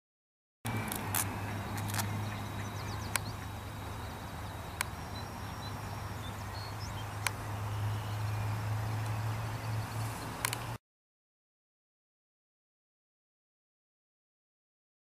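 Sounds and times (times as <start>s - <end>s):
steady low hum: 0.7s - 10.4s.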